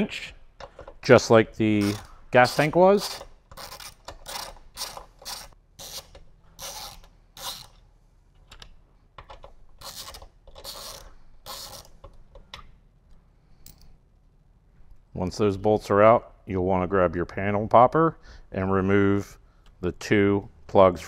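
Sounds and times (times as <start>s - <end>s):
socket ratchet clicking: 1.8s - 7.8s, 8.5s - 12.7s.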